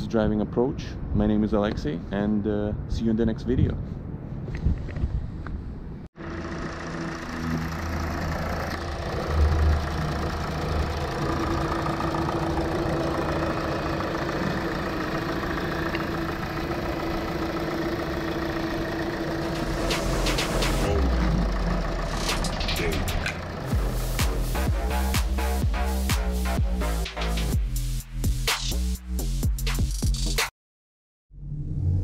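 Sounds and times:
car engine idling: 6.2 - 28.0.

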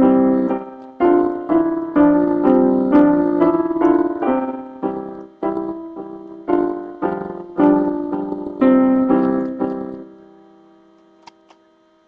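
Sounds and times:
electronic keyboard piano piece: 0.0 - 11.4.

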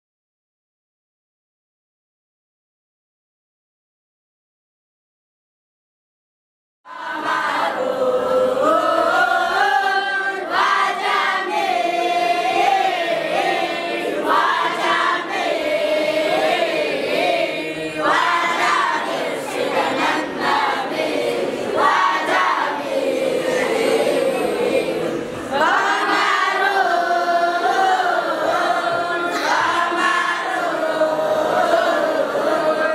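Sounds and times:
boys choir singing in unison: 6.9 - 32.9.

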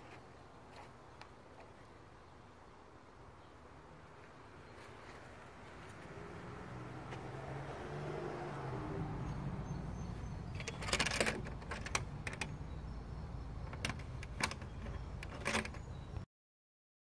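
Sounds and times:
handling clicks and rattles: 10.5 - 12.6, 13.6 - 16.0
phone handling rumble: 10.5 - 12.6, 13.6 - 15.9.

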